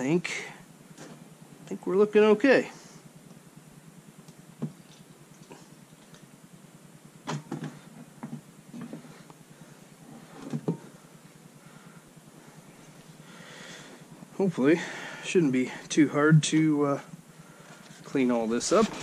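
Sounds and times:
faint steady hum: 0.0s - 19.0s
parts knocking and clunking: 10.3s - 11.0s.

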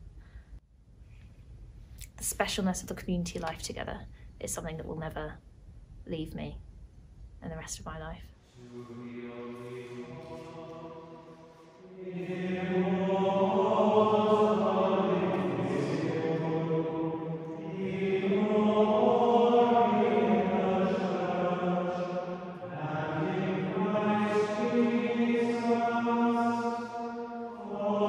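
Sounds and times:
choir singing plainchant: 8.6s - 28.0s.

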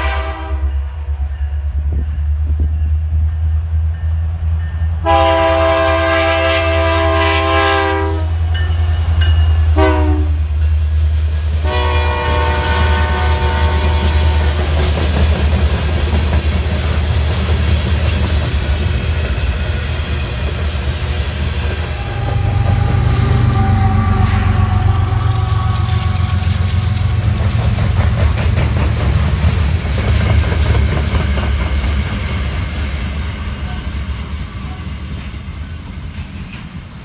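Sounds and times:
locomotive air horn: 0.0s - 0.9s, 5.0s - 8.5s, 9.7s - 10.5s, 11.6s - 14.7s, 21.7s - 27.1s
train wheels clickety-clack on rails: 1.1s - 37.0s.

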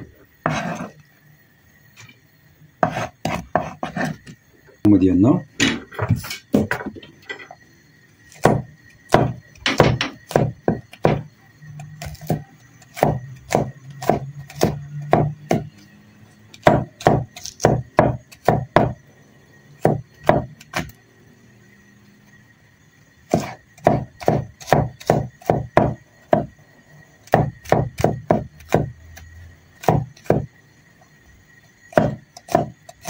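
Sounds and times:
knife chopping on wooden board: 0.4s - 0.9s, 2.8s - 4.4s, 8.3s - 11.3s, 12.0s - 15.7s, 16.6s - 19.0s, 19.8s - 20.9s, 23.3s - 26.6s, 27.3s - 29.0s, 29.8s - 30.5s, 31.9s - 33.0s.

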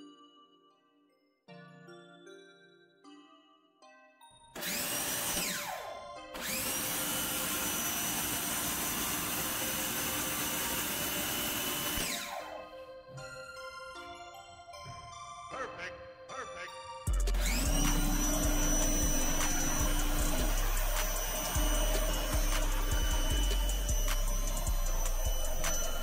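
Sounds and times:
light jingly background music: 0.0s - 26.0s
pressure washer motor whine: 4.6s - 12.7s, 17.1s - 26.0s.

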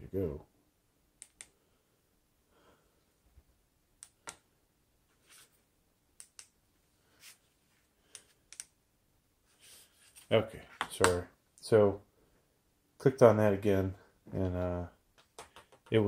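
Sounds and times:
soft rustles of handling: 5.0s - 5.7s, 6.7s - 8.4s, 9.4s - 11.0s.

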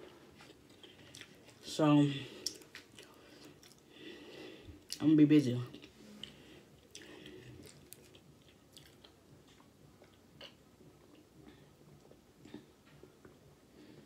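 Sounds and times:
chewing and swallowing: 0.3s - 1.7s, 2.3s - 3.9s, 5.7s - 13.4s.

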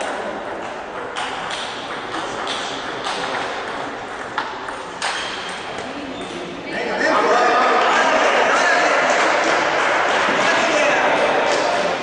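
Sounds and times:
murmur of a hall: 0.0s - 12.0s
table tennis ball clicking: 0.6s - 6.4s.

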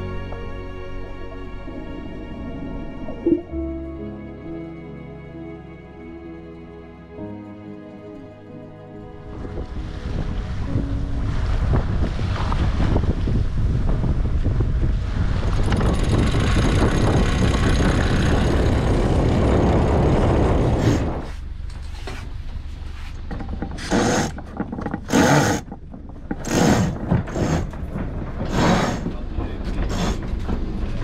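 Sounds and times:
wind buffeting microphone: 9.3s - 21.6s
rope rasping through fittings: 22.9s - 30.6s.

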